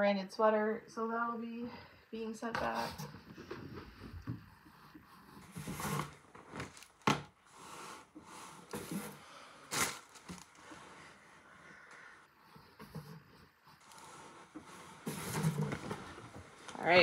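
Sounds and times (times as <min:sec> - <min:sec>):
fabric rustling: 0:05.3 - 0:11.6.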